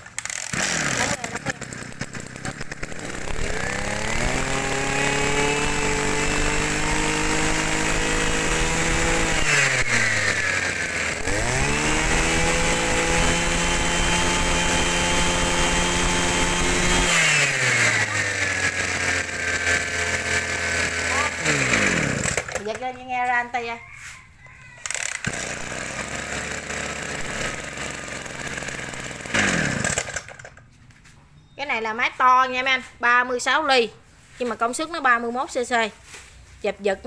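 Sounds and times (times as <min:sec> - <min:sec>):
brush cutter engine revving: 0:00.0 - 0:23.0, 0:24.8 - 0:30.6.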